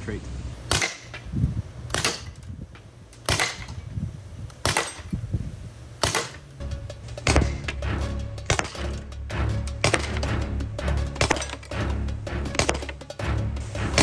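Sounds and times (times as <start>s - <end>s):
air gun shots: 0.6s - 1.3s, 1.9s - 2.5s, 3.2s - 3.8s, 4.5s - 5.2s, 6.0s - 6.5s, 7.2s - 7.8s, 8.4s - 9.0s, 9.8s - 10.3s, 11.2s - 11.8s, 12.5s - 14.0s
music: 6.6s - 14.0s.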